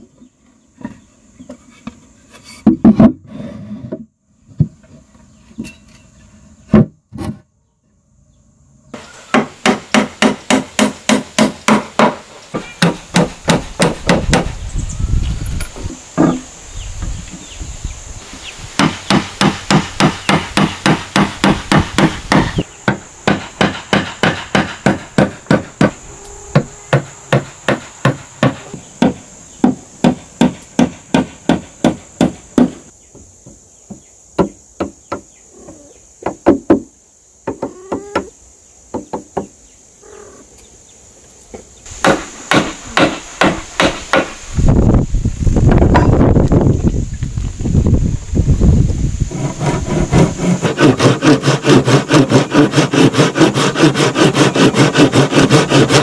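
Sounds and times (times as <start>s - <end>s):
hand saw cutting wood: 49.3s - 56.0s.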